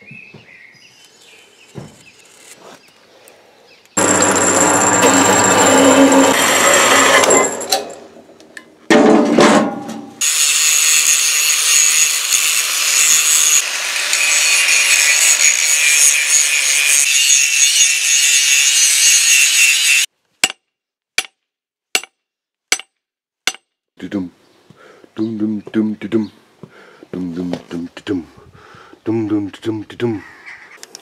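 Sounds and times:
bursts of machine noise: 4.0s - 7.7s
power tool grinding steel: 4.0s - 8.2s, 10.2s - 20.1s.

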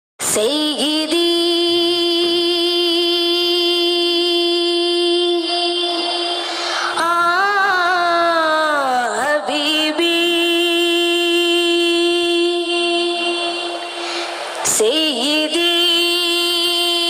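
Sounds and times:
boy singing solo: 0.2s - 14.0s, 14.6s - 17.0s.

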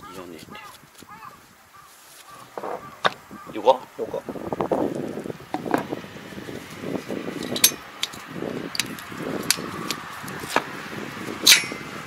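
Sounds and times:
handling rustle: 0.1s - 3.2s
metal tool clinks on casing: 11.5s - 11.8s.

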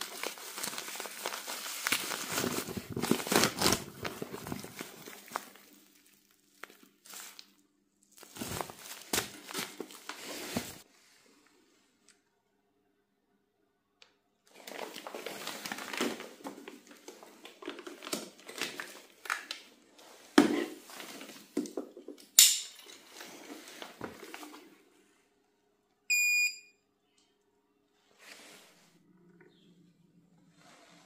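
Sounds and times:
short electronic beep: 26.1s - 26.8s.

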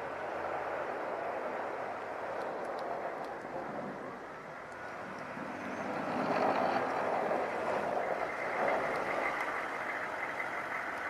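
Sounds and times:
truck engine under load: 4.1s - 11.0s
plow blade scraping snow: 4.8s - 11.0s.

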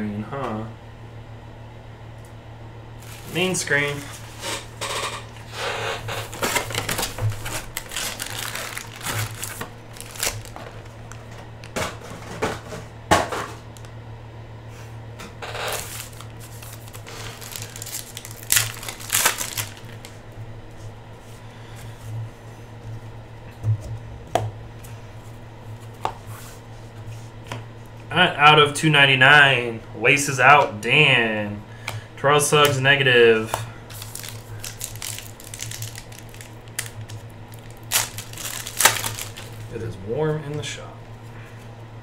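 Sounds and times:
steady low hum: 0.0s - 42.0s
cardboard scraping: 3.0s - 10.8s
foil wrappers crinkling and tearing: 3.0s - 11.8s, 15.5s - 20.2s, 33.4s - 39.8s
cards being shuffled: 6.1s - 11.8s, 15.6s - 20.2s, 33.5s - 39.7s.

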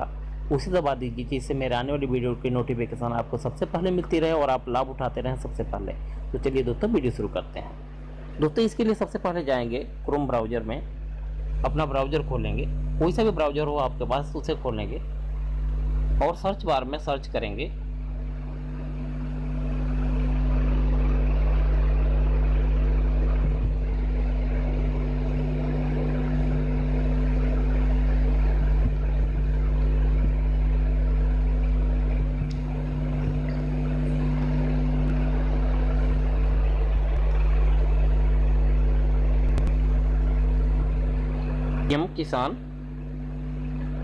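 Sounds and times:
electrical hum: 0.0s - 44.0s.

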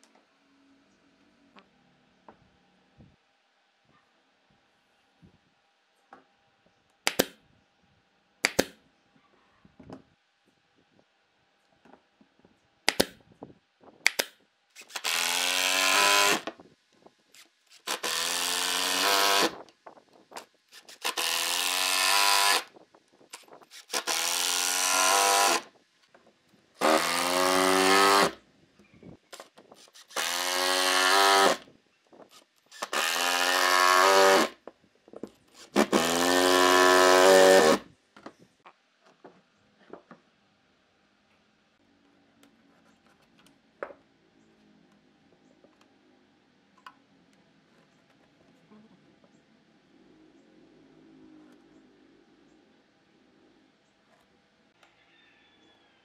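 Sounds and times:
sharp clicks: 7.1s - 7.4s, 8.4s - 8.8s, 12.9s - 13.2s, 14.0s - 15.2s
impact driver driving screws: 14.1s - 16.5s, 17.4s - 19.6s, 20.7s - 22.7s, 23.3s - 25.7s, 26.8s - 28.4s, 29.4s - 31.6s, 32.3s - 34.6s, 35.5s - 37.8s.

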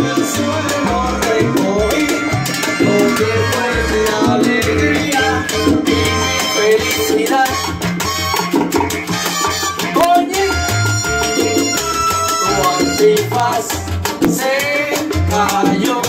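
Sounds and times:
person singing: 0.0s - 7.8s, 9.9s - 10.8s, 12.3s - 16.0s
bass line: 0.0s - 15.9s
congas and timbales: 0.0s - 16.0s
live salsa band playing: 0.0s - 16.0s.

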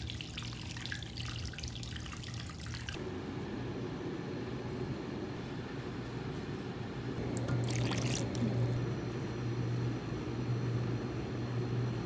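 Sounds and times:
drink pouring into paper cup: 7.2s - 8.7s.

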